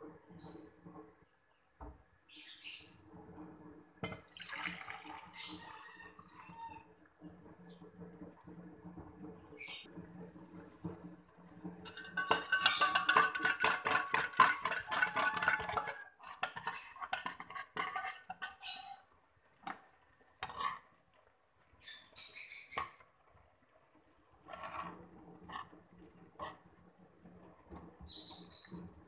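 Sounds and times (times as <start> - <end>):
crackling and clattering: 7.3 - 21.0
clinks: 11.9 - 16.0.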